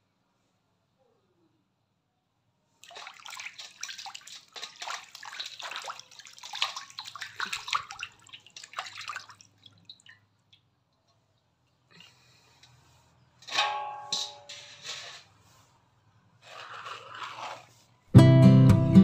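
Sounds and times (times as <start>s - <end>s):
water splashing in metal basin: 2.8s - 10.6s, 16.4s - 17.8s.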